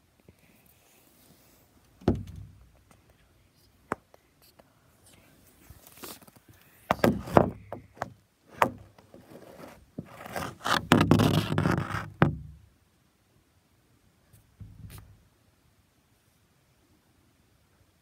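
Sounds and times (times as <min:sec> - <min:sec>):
soft bump: 0:02.0 - 0:02.8, 0:06.9 - 0:09.0
scraping against microphone: 0:04.4 - 0:12.2, 0:14.7 - 0:15.2.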